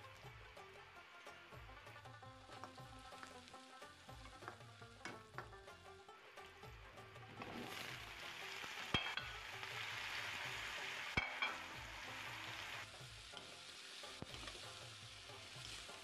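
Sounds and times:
vegetables sizzling in hot oil: 0.0 - 16.0
utensil clinking against pan: 8.9 - 9.4, 11.2 - 11.6.

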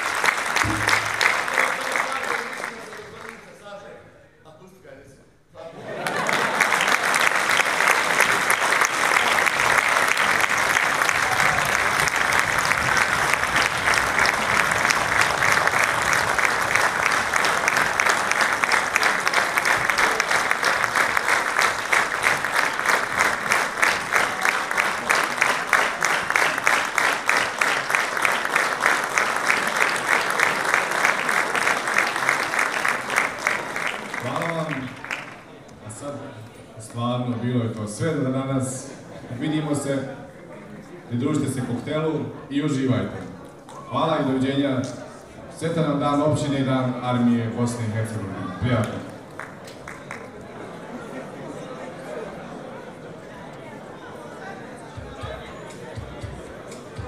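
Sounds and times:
rhythmic clapping in unison: 0.0 - 3.5, 6.1 - 35.5, 49.1 - 50.3, 55.0 - 57.0
audience applauding: 0.0 - 3.7, 5.9 - 35.8, 48.4 - 52.2.

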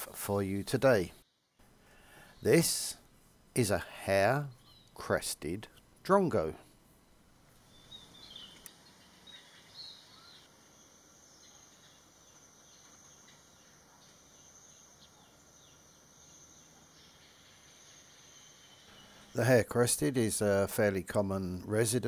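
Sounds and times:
soft bird chirps: 4.4 - 5.1, 6.6 - 19.5.

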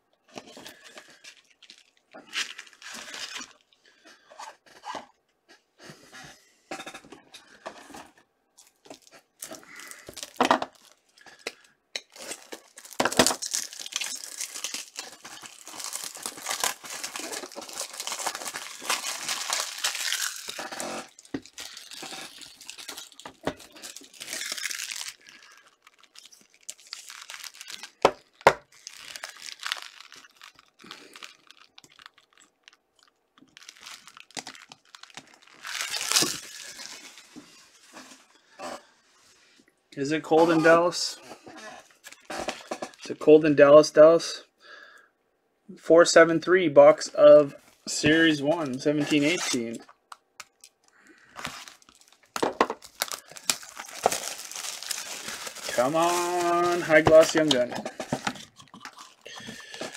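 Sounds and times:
plastic wrapping tearing and crinkling: 0.4 - 4.9, 8.6 - 38.4, 40.4 - 43.1, 47.7 - 59.9.

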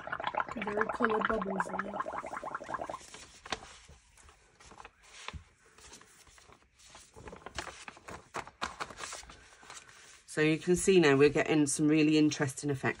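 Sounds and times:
paper rustling: 3.0 - 10.3.

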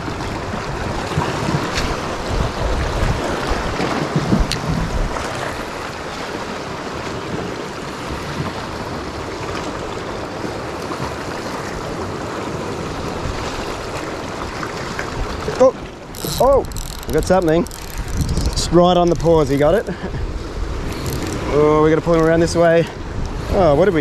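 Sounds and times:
wind gusting on microphone: 0.0 - 9.3, 15.0 - 24.0
waves washing against rocks: 0.0 - 24.0.

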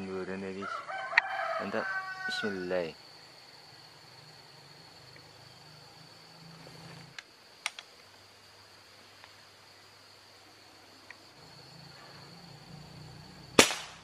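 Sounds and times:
high insect drone: 0.0 - 14.0
air rifle shot crack: 13.6 - 14.0.

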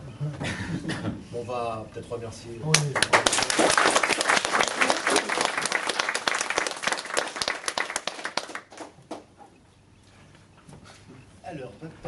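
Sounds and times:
crowd applauding: 2.7 - 9.0.

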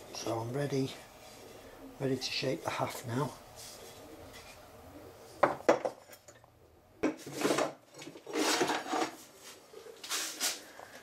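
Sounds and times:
knock on wooden workbench: 5.4 - 6.0
short scraping rustles: 8.3 - 10.7.

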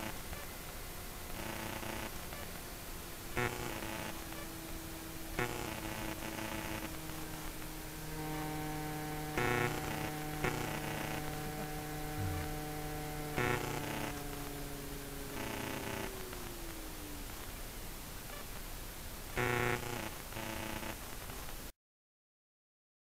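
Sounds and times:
helicopter motor and rotor hum: 0.0 - 18.3.

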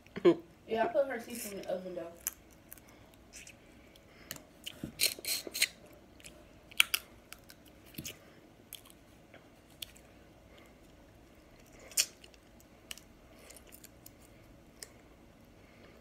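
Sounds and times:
crab shell cracking: 6.7 - 9.0, 11.6 - 14.2
mouth smacks and chewing: 9.6 - 15.0.

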